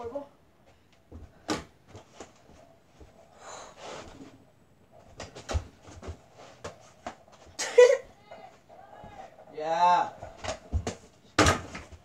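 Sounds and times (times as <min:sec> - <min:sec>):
basketball bouncing off walls: 0:01.1 - 0:01.9, 0:10.2 - 0:12.0
person breathing: 0:03.3 - 0:04.3.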